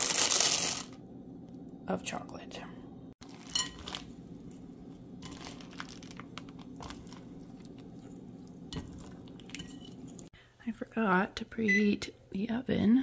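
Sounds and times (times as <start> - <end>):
steady low hum: 0.6 - 11.4
whisk scraping glass bowl: 5.2 - 10.3.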